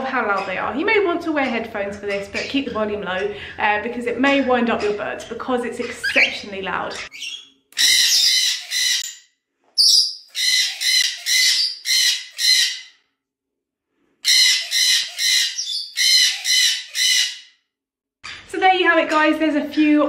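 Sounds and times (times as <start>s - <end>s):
parrot screaming shrieks: 7.0s - 9.2s, 9.8s - 12.9s, 14.2s - 17.5s.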